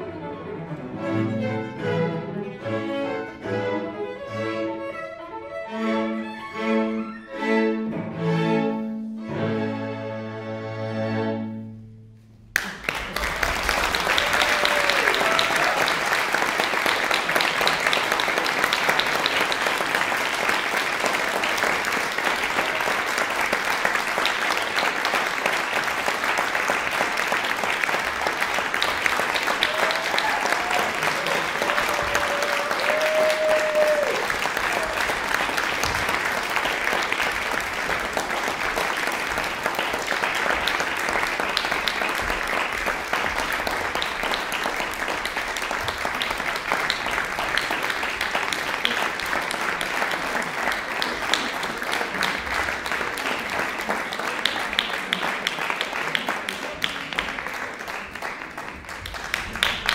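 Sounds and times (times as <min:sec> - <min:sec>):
music: 0:00.0 - 0:13.0
audience applause: 0:12.6 - 0:59.9
person cheering: 0:14.0 - 0:16.1, 0:29.6 - 0:35.1.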